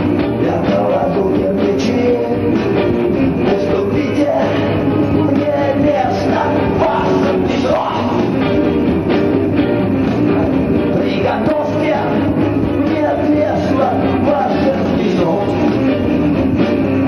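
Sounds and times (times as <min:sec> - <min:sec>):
live rock band playing: 0:00.0 - 0:17.0
man singing into microphone: 0:00.3 - 0:02.7, 0:03.4 - 0:08.2, 0:10.9 - 0:15.8.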